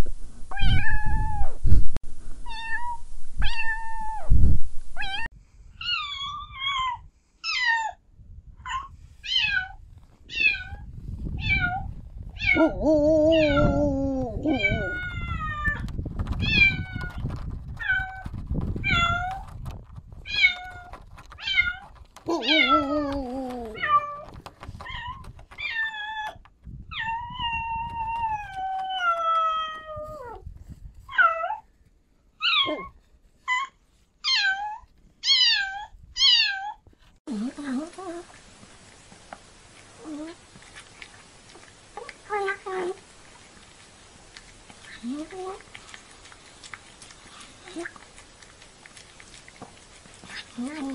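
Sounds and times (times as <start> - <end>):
cat meowing: 11.4 - 15.8, 20.3 - 30.4.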